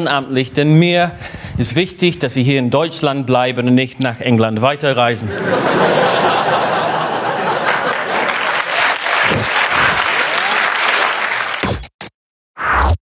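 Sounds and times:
audience applauding: 0:06.9 - 0:11.6.

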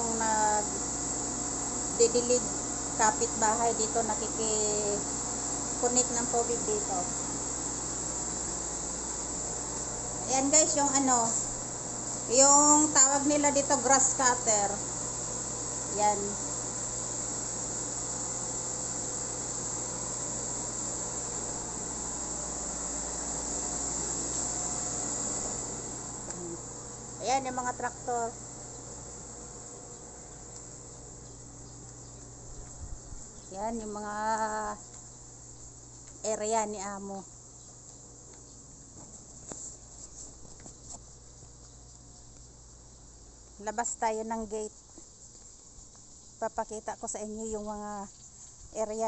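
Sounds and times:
crickets chirping: 0:00.0 - 0:49.0
low steady hum: 0:00.0 - 0:49.0
insect chirring: 0:26.2 - 0:39.9, 0:40.7 - 0:49.0.

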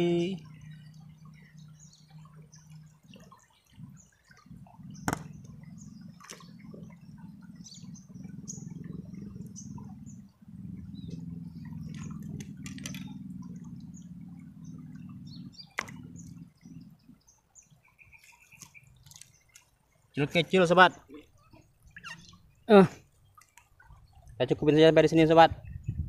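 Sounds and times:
river water trickling over stones: 0:00.0 - 0:25.4
sharp clicks: 0:11.9 - 0:13.2.

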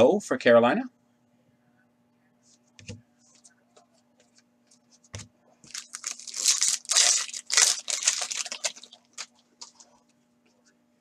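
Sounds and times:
foil wrapper tearing and crinkling: 0:05.7 - 0:09.8.

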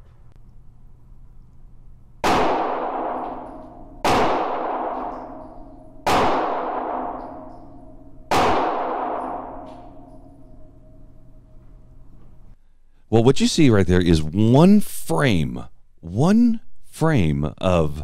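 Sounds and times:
gunshots echoing indoors: 0:02.2 - 0:12.0.

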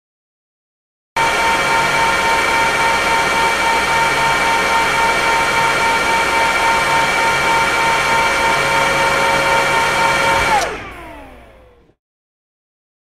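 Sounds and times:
server cooling fans whining: 0:01.2 - 0:11.9.

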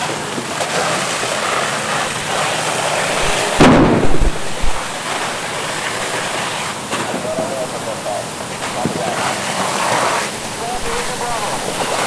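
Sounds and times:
fire hose water hissing: 0:00.0 - 0:12.0
heavy low thumps: 0:03.1 - 0:05.4.

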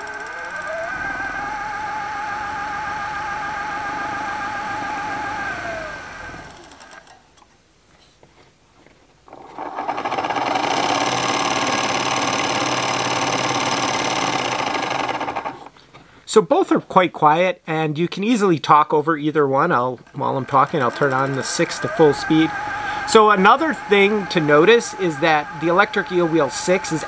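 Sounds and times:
spinner whirring: 0:00.0 - 0:07.2, 0:09.3 - 0:15.7, 0:20.0 - 0:27.0
spinning wheel motor whine: 0:00.0 - 0:07.2, 0:09.3 - 0:15.7, 0:20.0 - 0:27.0.

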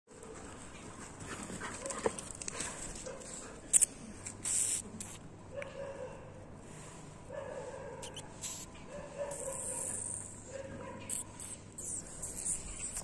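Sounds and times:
rustle: 0:00.1 - 0:05.2.

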